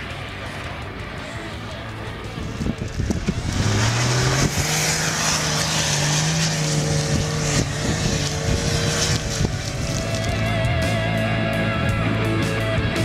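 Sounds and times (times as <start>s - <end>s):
suv engine revving hard: 3.0s - 11.6s.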